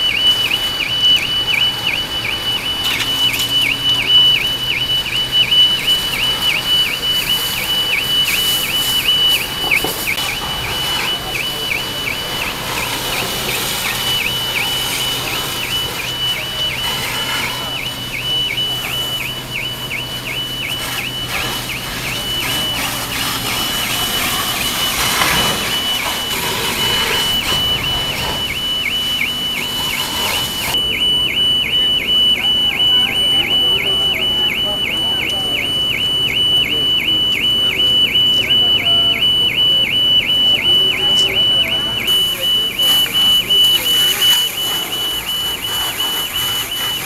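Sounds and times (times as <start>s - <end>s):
electronic alarm warbling: 0.0s - 47.0s
fire hissing: 0.2s - 30.8s, 42.1s - 47.0s
hose water jets: 0.2s - 30.8s, 42.1s - 47.0s.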